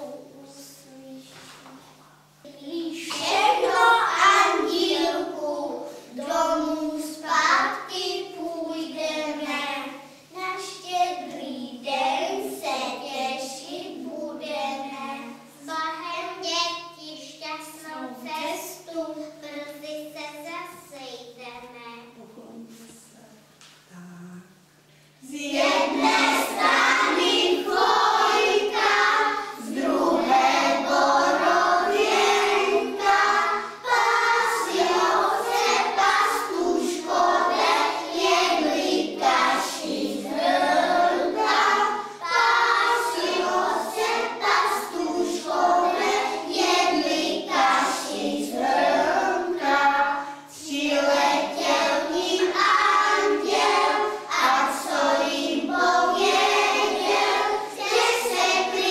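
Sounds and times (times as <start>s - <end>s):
children singing: 3.0s - 9.2s, 25.2s - 58.9s.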